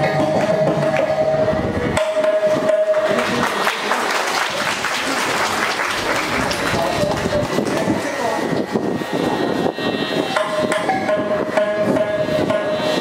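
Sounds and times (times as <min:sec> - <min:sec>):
audience applause: 0:03.0 - 0:08.4.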